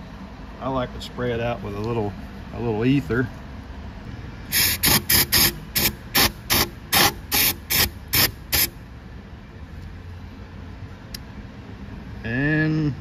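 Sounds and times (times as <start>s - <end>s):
aerosol spray hissing bursts: 4.5s - 8.7s.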